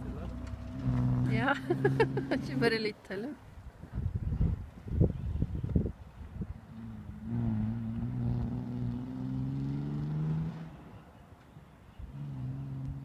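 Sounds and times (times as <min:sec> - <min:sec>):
car engine running under load: 0:00.0 - 0:02.8.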